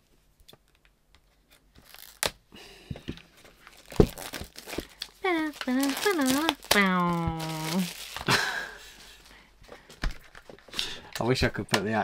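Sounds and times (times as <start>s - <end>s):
packaging rustling and tearing: 1.5s - 2.4s, 3.4s - 9.3s.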